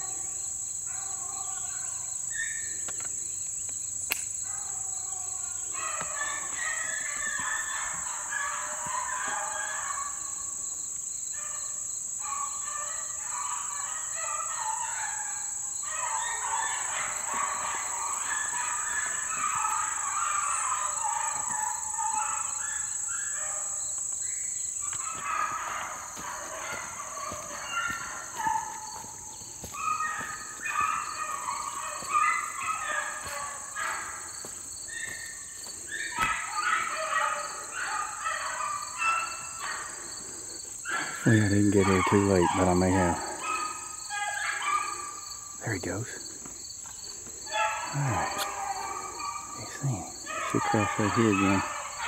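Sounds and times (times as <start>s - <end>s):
insects buzzing: 0.0s - 52.0s
dogs baying: 4.5s - 10.8s, 11.4s - 52.0s.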